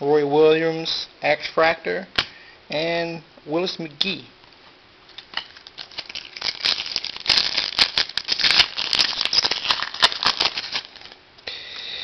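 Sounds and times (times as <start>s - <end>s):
foil wrapper crinkling and tearing: 5.3s - 11.2s.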